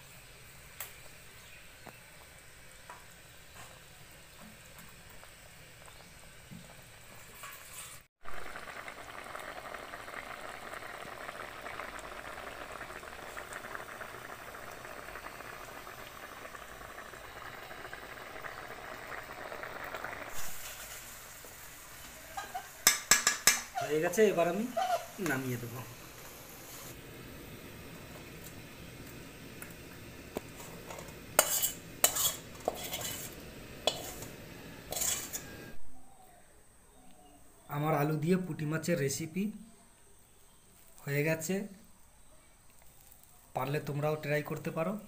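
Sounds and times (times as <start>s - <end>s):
curry bubbling in metal pot: 0.3s - 35.8s.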